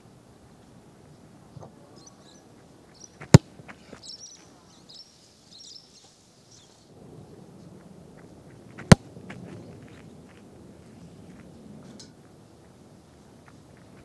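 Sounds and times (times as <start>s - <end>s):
birds chirping: 1.0s - 14.0s
boot kicking a football: 3.2s - 3.8s, 8.8s - 9.5s
footsteps on grass: 7.6s - 11.6s.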